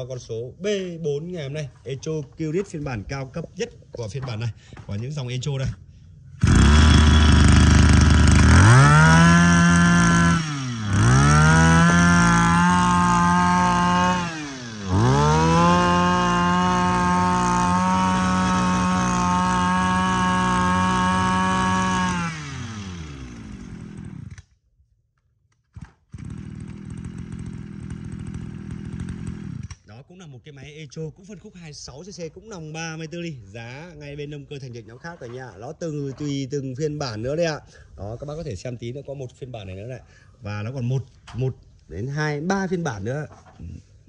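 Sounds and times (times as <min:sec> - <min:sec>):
brush cutter engine revving: 0:06.4 - 0:24.5, 0:25.8 - 0:29.9.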